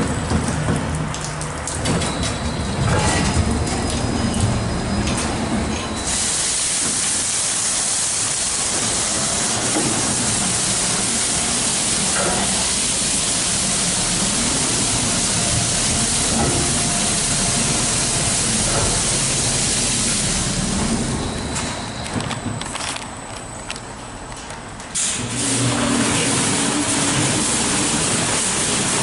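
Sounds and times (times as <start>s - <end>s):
water spray hissing: 6.1s - 21.0s
low machine hum: 8.3s - 27.7s.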